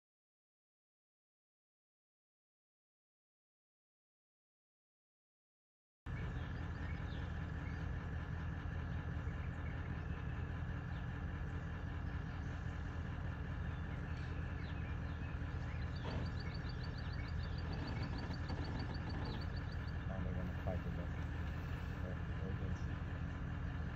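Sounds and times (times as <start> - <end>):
truck engine idling: 6.1 - 23.9.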